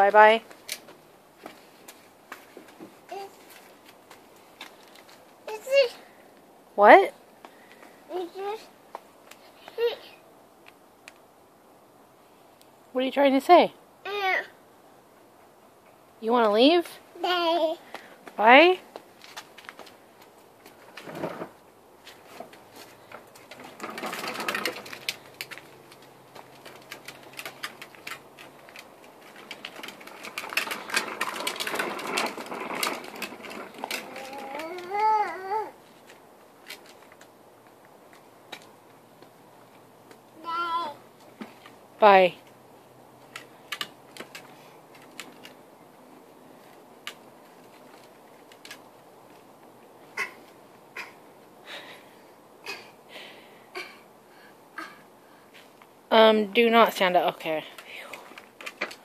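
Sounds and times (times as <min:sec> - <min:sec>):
plastic wheels rattling on concrete: 0:00.0 - 0:05.9, 0:18.4 - 0:37.4, 0:41.2 - 0:45.7, 0:46.6 - 0:50.6, 0:56.2 - 0:59.0
plastic tricycle clicks and taps: 0:22.4 - 0:35.4, 0:36.0 - 0:37.3, 0:43.2 - 0:45.6, 0:46.6 - 0:49.5, 0:57.8 - 0:59.0.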